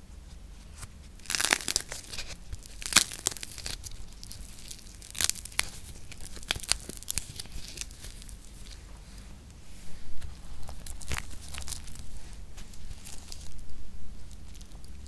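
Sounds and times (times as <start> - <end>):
plasticine cracking and crackling: 1.1 - 8.9, 10.2 - 15.0.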